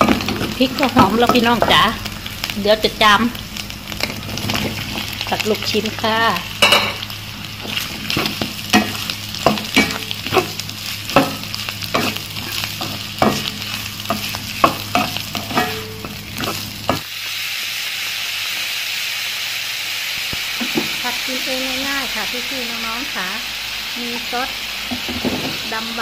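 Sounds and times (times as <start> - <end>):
meat sizzling in a wok: 0.0 - 26.0
spatula scraping a wok: 4.0 - 17.1.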